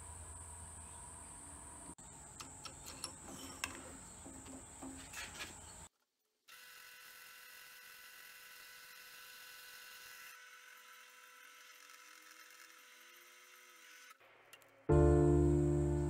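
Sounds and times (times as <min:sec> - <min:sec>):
small clicks: 0:02.4 - 0:03.9
sandpaper scouring metal: 0:02.9 - 0:05.9.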